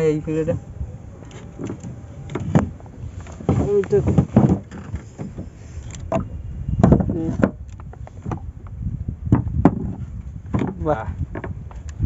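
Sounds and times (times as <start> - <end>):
low rumble: 0.0 - 12.0
knocks on wooden boat planking: 1.6 - 5.5, 6.1 - 8.5, 9.3 - 11.9.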